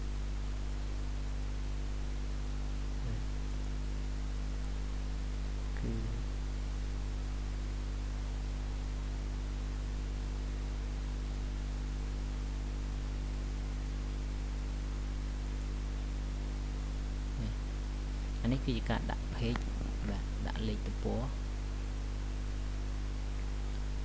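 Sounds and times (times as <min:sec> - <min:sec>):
constant hiss: 0:00.0 - 0:24.0
electrical mains hum: 0:00.0 - 0:24.0
faint low sounds: 0:02.9 - 0:03.6, 0:05.6 - 0:06.4, 0:17.3 - 0:21.9.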